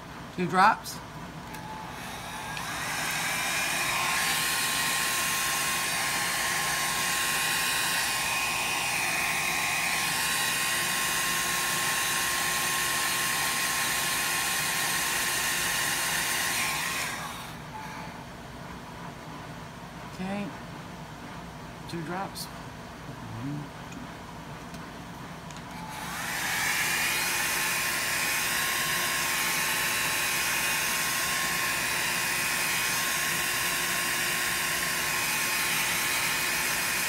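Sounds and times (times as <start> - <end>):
electric dryer blowing air: 1.5 - 18.2, 25.7 - 37.0.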